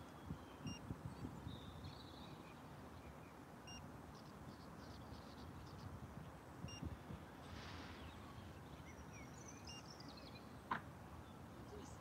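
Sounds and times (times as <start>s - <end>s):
faint electronic drone beeps: 9.6s - 9.9s.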